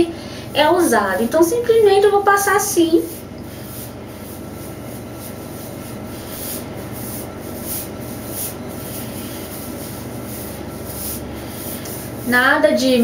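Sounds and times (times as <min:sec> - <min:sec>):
washing machine rumbling: 0:00.0 - 0:13.0
hands rubbing cream through hair: 0:02.3 - 0:12.3.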